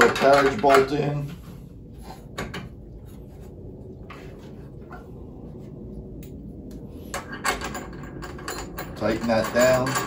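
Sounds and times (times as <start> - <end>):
low room hum: 0.0 - 10.0
metal clinking and rattling: 7.2 - 10.0.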